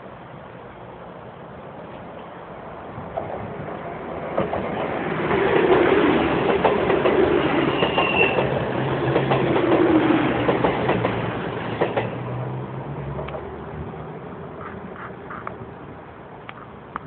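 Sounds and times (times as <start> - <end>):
train wheels rushing: 3.0 - 15.4.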